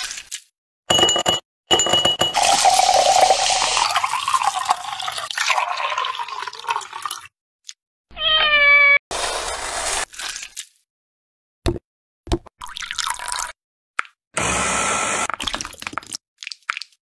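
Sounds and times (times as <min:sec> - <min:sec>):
liquid pouring over ice: 0:02.4 - 0:07.3
cat meowing: 0:08.1 - 0:09.0.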